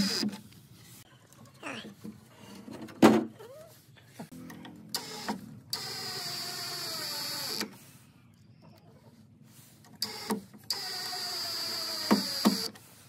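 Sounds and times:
cordless drill driving screw: 0.0s - 0.3s, 5.0s - 7.7s, 10.0s - 12.8s.

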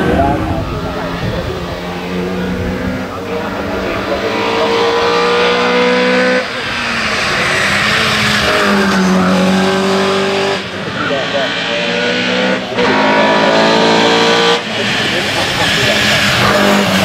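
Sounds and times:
car engine accelerating: 0.0s - 17.0s
road and tyre noise: 0.0s - 17.0s.

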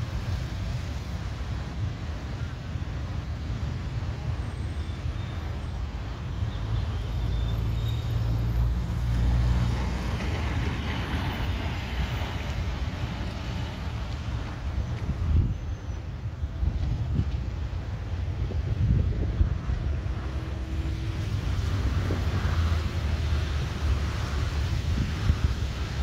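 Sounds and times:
cars passing: 0.0s - 26.0s
low traffic rumble: 0.0s - 26.0s
motorbikes passing: 18.1s - 26.0s.

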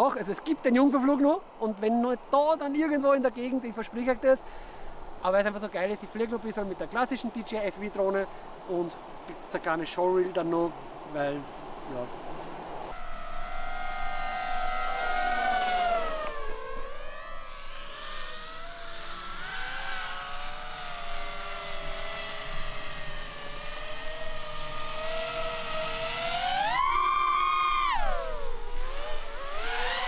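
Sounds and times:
drone motors whining: 12.9s - 30.0s.

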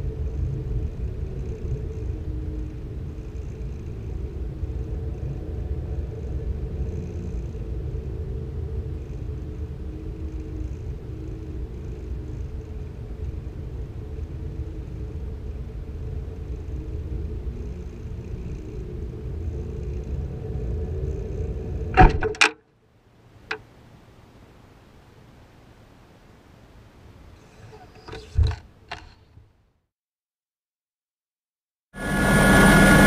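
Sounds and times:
wind rushing and rumbling: 0.0s - 22.5s.

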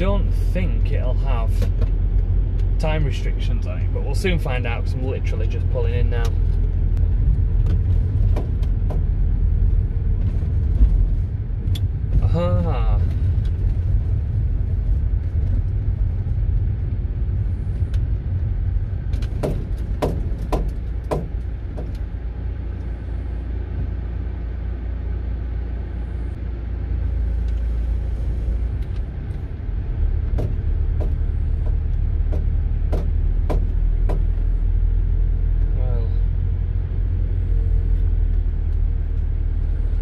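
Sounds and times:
van engine and road rumble: 0.0s - 40.0s.

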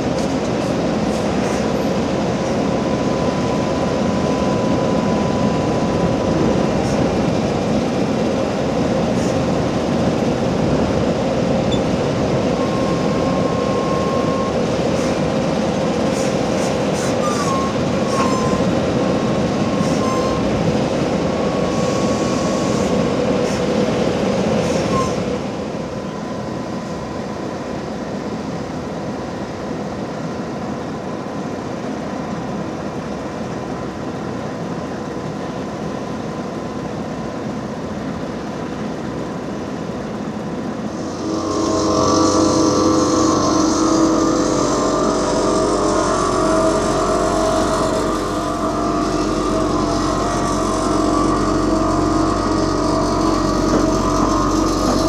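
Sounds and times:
heavy machinery diesel drone: 0.0s - 55.0s
faint high whine: 2.6s - 7.2s, 39.4s - 55.0s.

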